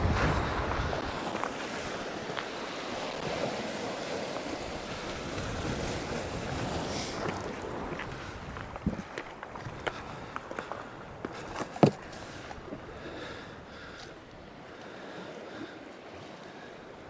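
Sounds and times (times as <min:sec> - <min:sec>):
wind buffeting microphone: 0:00.0 - 0:16.4
waves breaking on rocky shore: 0:00.0 - 0:17.0.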